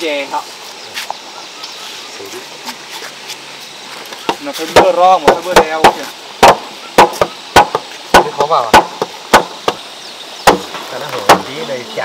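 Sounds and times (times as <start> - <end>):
hammer striking wooden beams: 4.8 - 9.8, 10.4 - 11.6.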